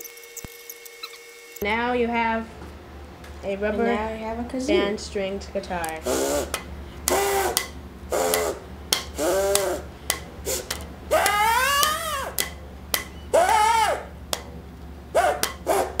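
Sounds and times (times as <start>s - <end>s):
buzzy kazoo notes: 6.0s - 12.4s, 13.2s - 14.1s, 15.1s - 16.0s.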